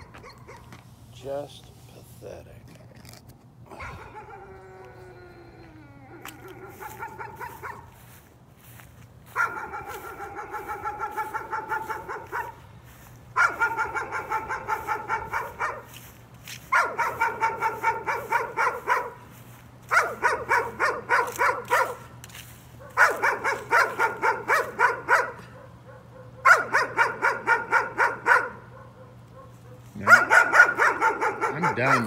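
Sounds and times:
small dog barking: 0:00.0 - 0:00.7, 0:06.2 - 0:08.0, 0:09.3 - 0:12.7, 0:13.4 - 0:16.0, 0:16.6 - 0:19.3, 0:19.9 - 0:22.1, 0:22.8 - 0:32.0.

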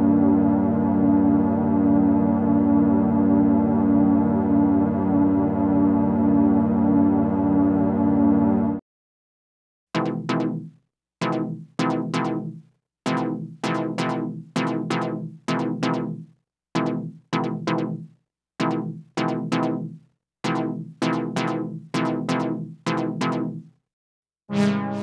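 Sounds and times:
synthesizer chord stabs: 0:10.0 - 0:23.6, 0:24.5 - 0:25.0.

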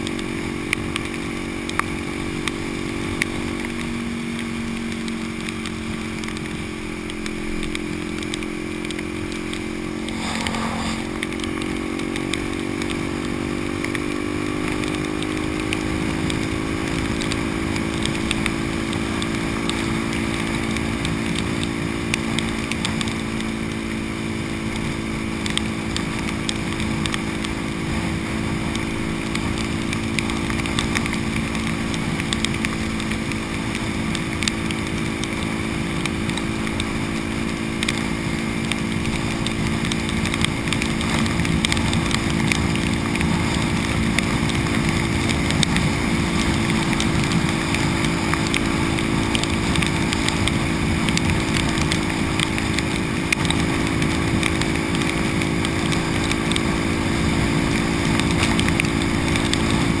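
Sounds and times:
light ticks: 0:00.0 - 0:24.1, 0:24.7 - 1:00.0
motorcycle engine cruising: 0:00.0 - 1:00.0
heavy rain: 0:03.5 - 1:00.0
wind rush: 0:09.6 - 0:12.7
road spray hiss: 0:09.9 - 0:12.0.

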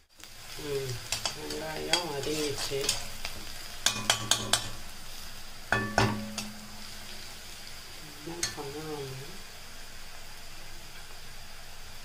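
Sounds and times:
vegetables sizzling in oil: 0:00.0 - 0:12.0
ladle ringing knock on pan: 0:05.7 - 0:06.8.

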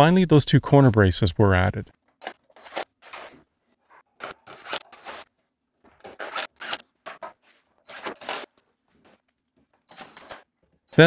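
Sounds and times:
wood scraping on workbench: 0:02.3 - 0:05.3, 0:05.9 - 0:09.2.

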